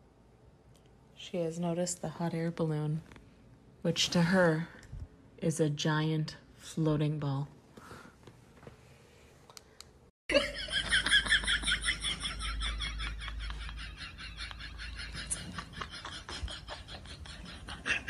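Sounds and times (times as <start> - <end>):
person giggling: 10.3 - 18.0.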